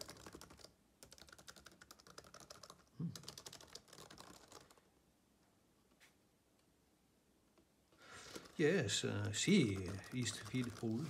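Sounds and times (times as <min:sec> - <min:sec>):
laptop keyboard typing: 0:00.0 - 0:04.8, 0:08.2 - 0:11.0.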